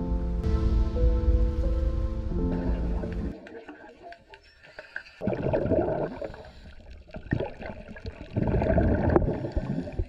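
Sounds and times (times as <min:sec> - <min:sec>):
underwater bubbling and gurgling: 0:02.4 - 0:10.0.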